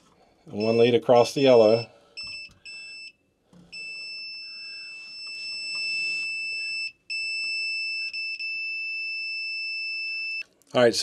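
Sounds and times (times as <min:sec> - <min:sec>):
multimeter continuity beep: 0:00.5 - 0:10.4.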